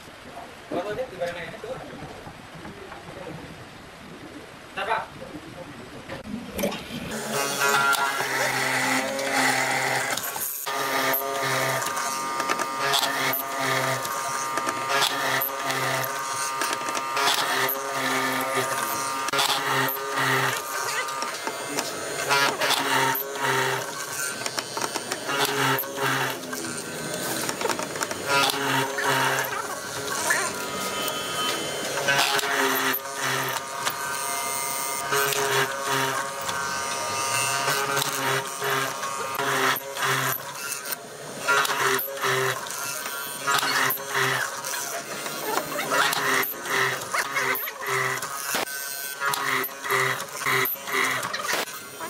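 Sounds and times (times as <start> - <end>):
motor humming: 6.6 - 52.0
mortising machine cutting wood: 7.1 - 52.0.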